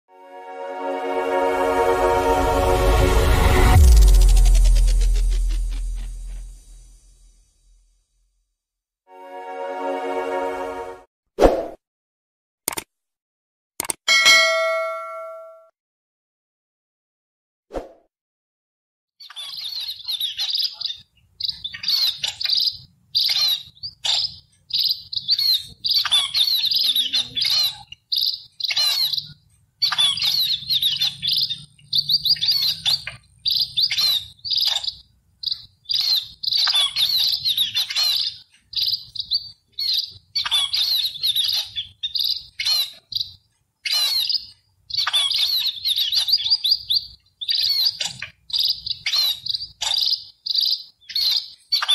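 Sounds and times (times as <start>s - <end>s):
sparrows chirping: 19.2s - 51.9s.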